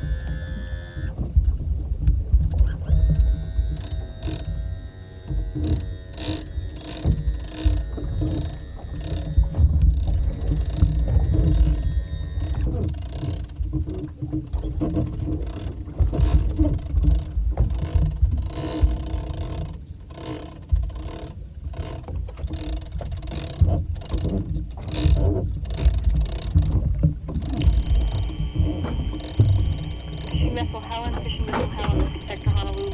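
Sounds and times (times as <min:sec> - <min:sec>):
faint steady hum: 0:00.0 - 0:13.8, 0:24.8 - 0:32.9
fishing reel rasping: 0:02.9 - 0:13.6, 0:15.2 - 0:30.5, 0:31.8 - 0:32.9
wind buffeting microphone: 0:23.8 - 0:32.9.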